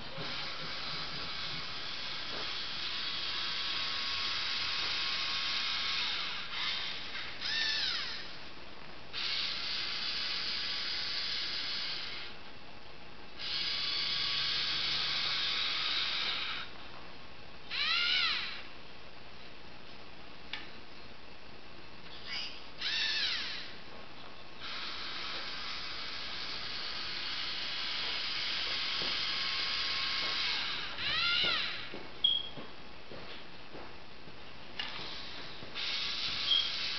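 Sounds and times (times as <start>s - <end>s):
brief whirs rising and falling: 0.0s - 8.4s, 22.2s - 23.7s, 34.8s - 36.9s
servo motors whirring with gear whine: 0.1s - 8.4s, 9.2s - 12.3s, 13.4s - 16.7s, 17.7s - 18.7s, 22.1s - 23.7s, 24.6s - 32.5s, 34.9s - 36.9s.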